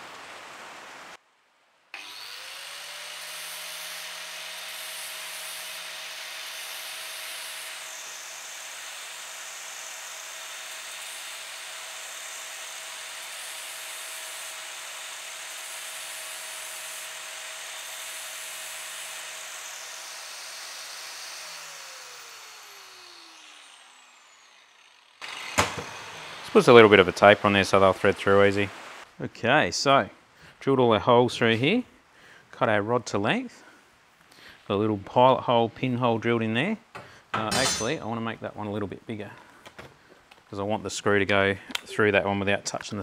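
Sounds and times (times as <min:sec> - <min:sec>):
angle grinder grinding metal rod: 0:02.0 - 0:28.6, 0:37.4 - 0:38.2.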